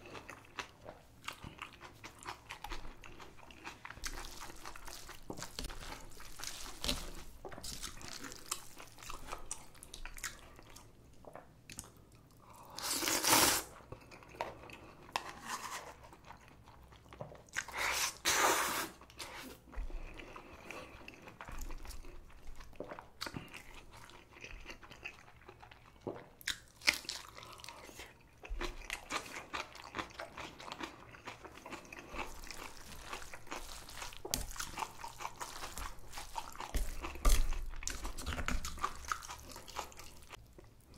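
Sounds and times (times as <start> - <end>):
chewing and crunching: 0.0 - 12.8, 13.8 - 17.8, 19.0 - 40.9
loud noodle slurp: 12.8 - 13.7.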